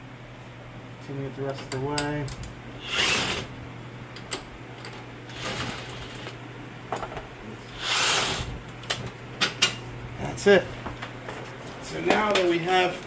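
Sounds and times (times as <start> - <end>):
impact wrench bursts: 2.8 - 3.5, 7.8 - 8.5.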